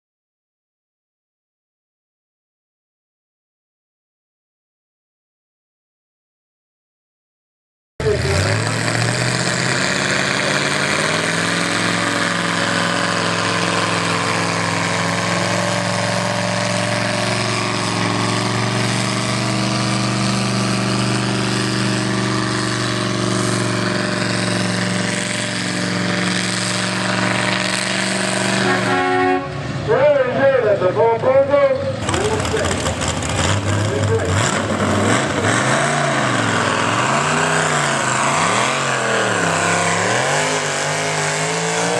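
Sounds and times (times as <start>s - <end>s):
tractor engine idling: 11.8s - 34.3s.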